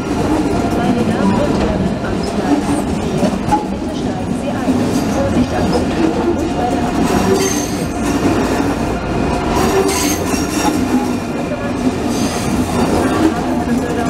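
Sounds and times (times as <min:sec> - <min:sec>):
train wheels rumbling: 0:00.0 - 0:14.0
high wheel squeals: 0:07.3 - 0:08.0, 0:09.6 - 0:11.1.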